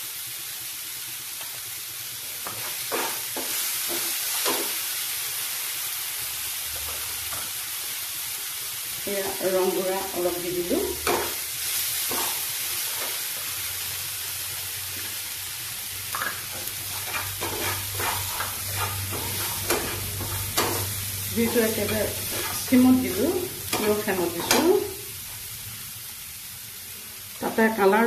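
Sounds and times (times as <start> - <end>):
food sizzling in a frying pan: 0.0 - 28.0
metal spatula scraping a pan: 2.4 - 4.7, 16.6 - 24.8.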